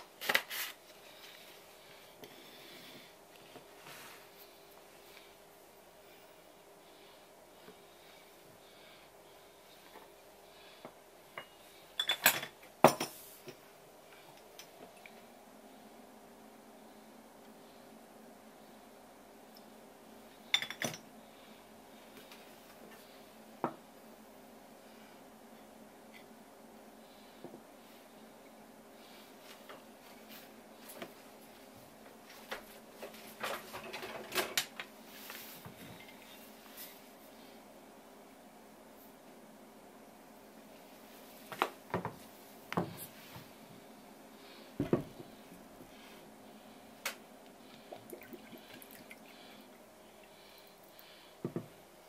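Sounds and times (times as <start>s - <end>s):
faint steady hum: 0.0s - 52.0s
tableware clattering: 11.4s - 13.2s, 20.6s - 21.0s.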